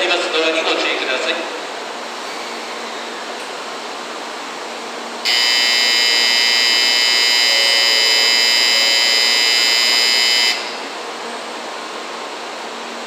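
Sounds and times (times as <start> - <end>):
platform departure buzzer: 5.2 - 11.0.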